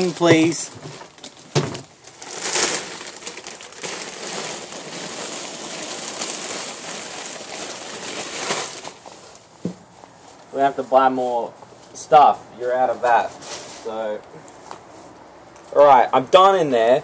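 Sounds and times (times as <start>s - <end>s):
newspaper rustling: 0.0s - 9.5s, 12.9s - 15.1s.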